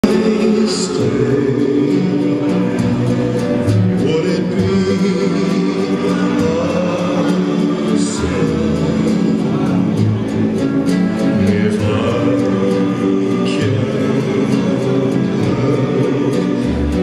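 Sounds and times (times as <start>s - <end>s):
guitar accompaniment: 0.0s - 17.0s
person singing: 0.0s - 17.0s.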